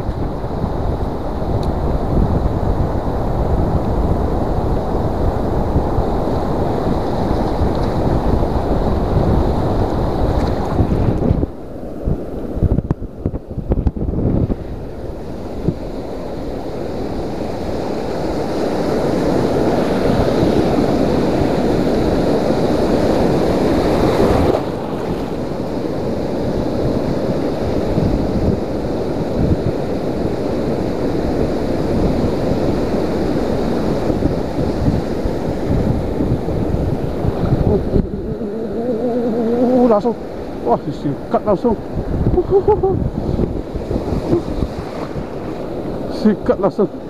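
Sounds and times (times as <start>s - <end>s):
surf washing over rocks: 0.0s - 47.0s
wind buffeting microphone: 0.0s - 47.0s.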